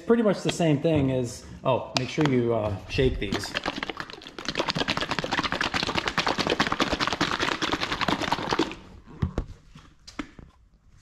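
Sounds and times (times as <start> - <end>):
bottle shaken sloshing rattle: 3.2 - 8.9.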